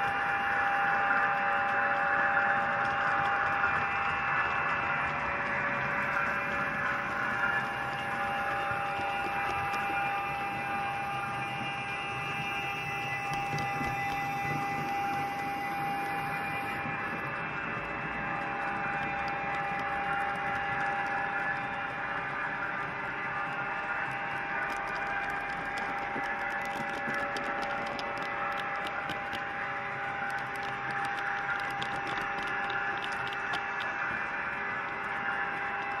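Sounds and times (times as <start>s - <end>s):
model train electric hum: 0.0s - 36.0s
rushing noise: 0.0s - 36.0s
sharp clicks: 12.0s - 21.8s, 24.1s - 36.0s.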